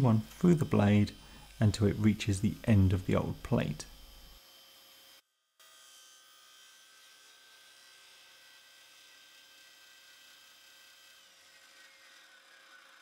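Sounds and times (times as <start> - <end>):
table saw whine: 0.0 - 13.0.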